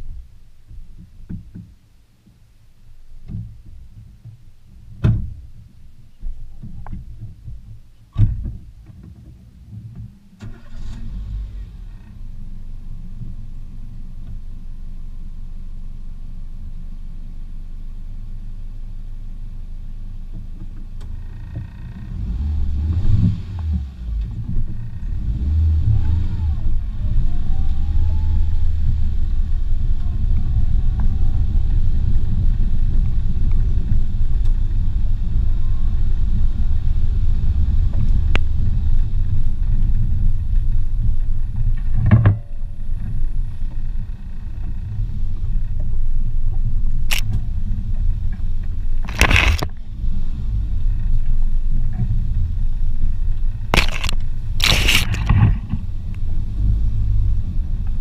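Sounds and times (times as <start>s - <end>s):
car engine starting and revving: 10.4s - 14.0s, 21.0s - 41.8s, 42.7s - 58.0s.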